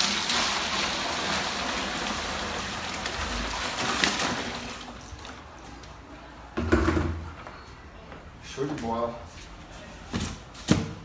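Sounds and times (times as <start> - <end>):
water pouring into cooler: 0.0 - 5.6.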